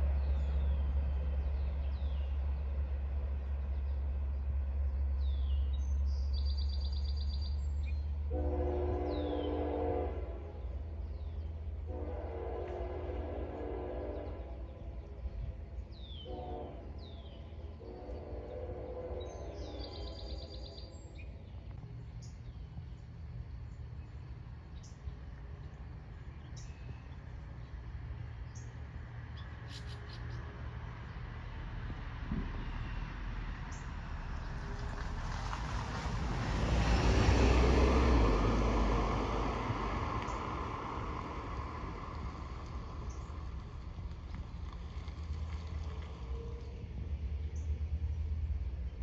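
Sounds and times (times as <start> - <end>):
low train rumble: 0.0 - 49.0
train air horn blasts: 8.3 - 10.9, 11.8 - 15.6, 16.2 - 20.7
birds chirping: 13.3 - 31.2
vehicle passing by: 29.1 - 48.5.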